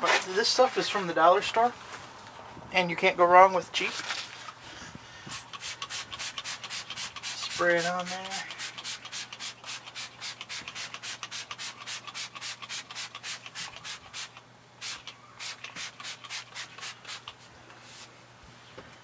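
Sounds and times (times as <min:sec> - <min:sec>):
spray bottle squirting: 0:05.3 - 0:17.4.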